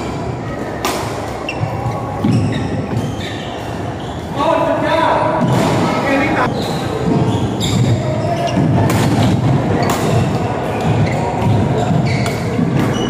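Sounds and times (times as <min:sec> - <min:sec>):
shoe squeaks: 0:00.4 - 0:13.0
racket hitting shuttlecock: 0:00.8 - 0:01.3, 0:08.5 - 0:13.0.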